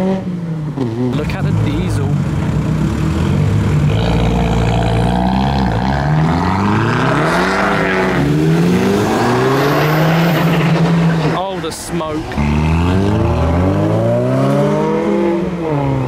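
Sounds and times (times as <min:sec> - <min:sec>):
car accelerating away: 0:00.0 - 0:16.0
car engine idling: 0:00.5 - 0:06.2.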